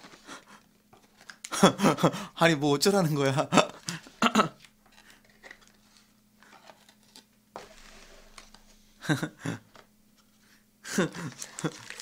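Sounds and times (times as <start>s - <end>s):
cardboard rustling: 4.9s - 8.9s, 9.7s - 12.0s.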